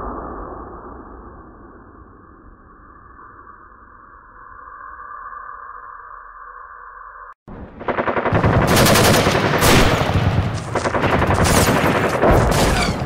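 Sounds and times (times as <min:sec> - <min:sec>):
automatic gunfire bursts: 0:07.7 - 0:13.0.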